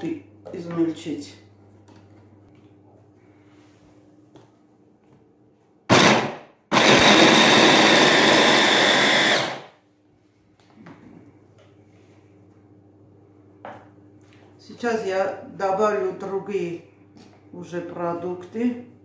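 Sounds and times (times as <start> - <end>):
electric hand blender grinding: 5.9 - 9.7.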